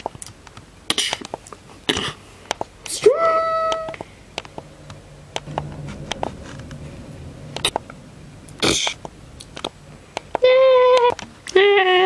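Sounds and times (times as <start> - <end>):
mouth hissing whoosh: 8.5 - 9.1.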